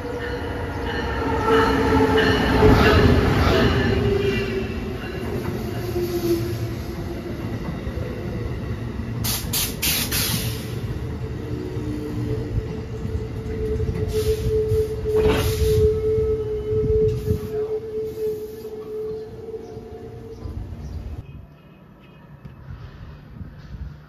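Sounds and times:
wheels rumbling on rail: 0:00.0 - 0:21.7, 0:22.4 - 0:24.0
hiss bursts: 0:09.2 - 0:10.9.

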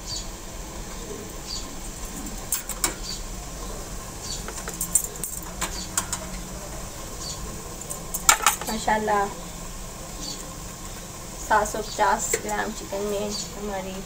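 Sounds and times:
skewers clinking on steel basket: 0:07.8 - 0:08.8.

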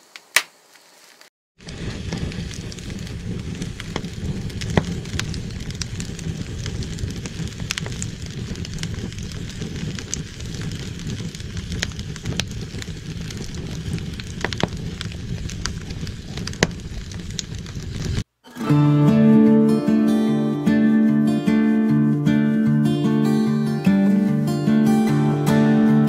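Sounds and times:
logs crackling and popping: 0:00.0 - 0:22.6
low rush of flames: 0:01.6 - 0:18.3.

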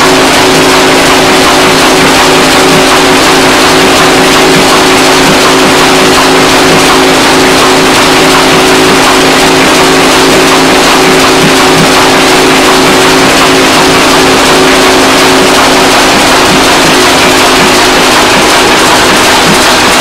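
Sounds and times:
sawmill machinery drone: 0:00.0 - 0:20.0.

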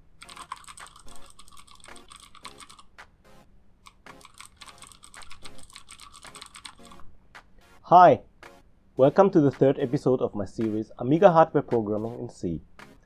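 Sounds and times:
computer keyboard typing: 0:00.2 - 0:03.1, 0:03.8 - 0:07.0.

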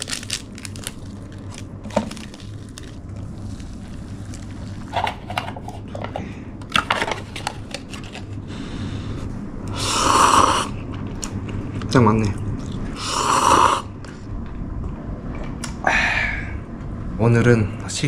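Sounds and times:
foil and paper crinkling: 0:00.0 - 0:04.5
low steady hum: 0:00.0 - 0:18.0
person eating noodles: 0:09.7 - 0:11.4, 0:12.6 - 0:13.9.

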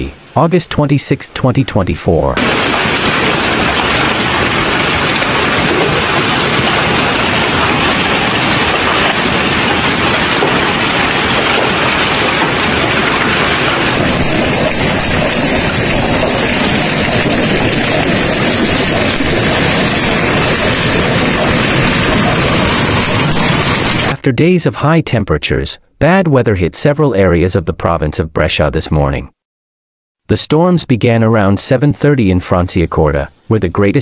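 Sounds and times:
hail and rain pelting down: 0:02.4 - 0:24.2.

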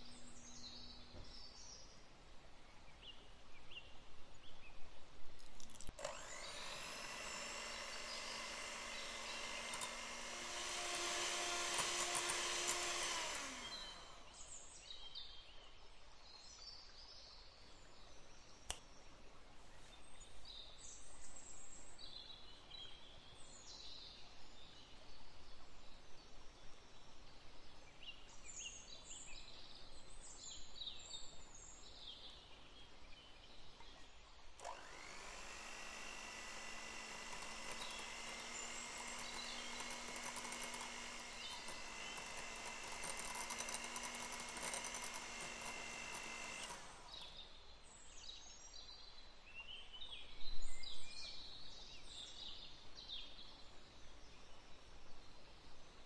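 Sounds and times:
electric hand mixer whining: 0:05.9 - 0:14.5, 0:34.6 - 0:47.5.

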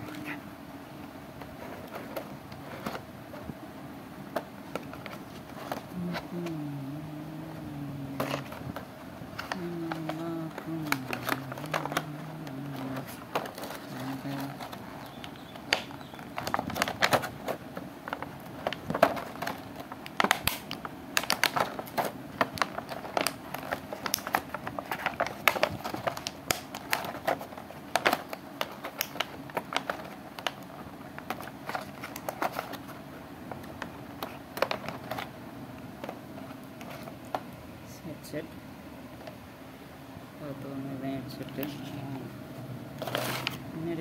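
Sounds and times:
plastic tray and cardboard handled: 0:01.4 - 0:03.6, 0:04.2 - 0:06.6, 0:08.1 - 0:35.3, 0:35.9 - 0:37.6, 0:43.0 - 0:44.0
clicks taps and crinkles: 0:04.3 - 0:06.8, 0:08.0 - 0:37.6, 0:41.3 - 0:42.2.

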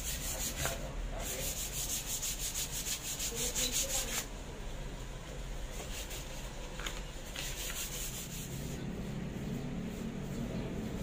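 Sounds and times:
sandpaper rasping on wood: 0:00.0 - 0:04.3, 0:05.7 - 0:06.4, 0:07.2 - 0:08.8.

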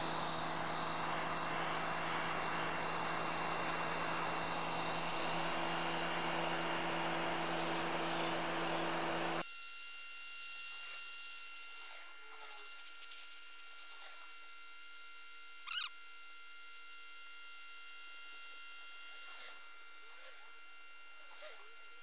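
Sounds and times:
pressure washer jet hissing: 0:00.0 - 0:09.4
pressure washer motor hum: 0:00.0 - 0:09.4.

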